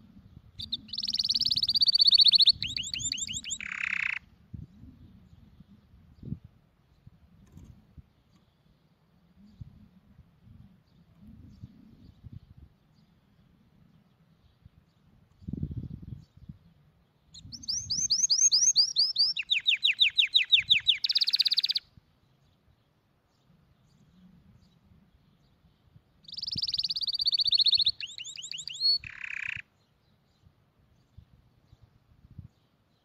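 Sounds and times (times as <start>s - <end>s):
small songbird trilling: 0.6s - 4.3s, 17.3s - 21.9s, 26.2s - 29.7s.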